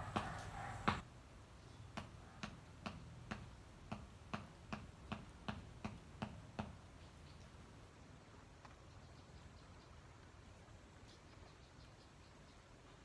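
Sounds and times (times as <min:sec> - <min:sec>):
rustle: 0:00.0 - 0:13.0.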